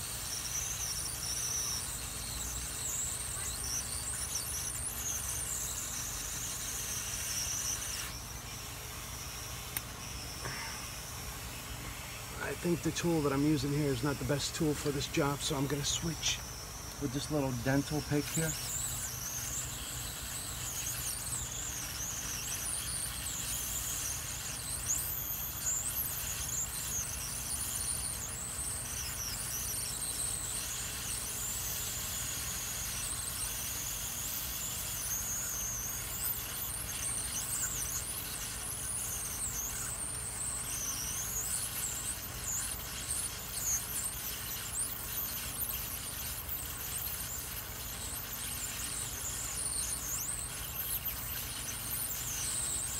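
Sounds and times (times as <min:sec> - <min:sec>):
high wavering whistle: 0:00.0 - 0:52.9
hot air blower rushing: 0:05.1 - 0:23.8.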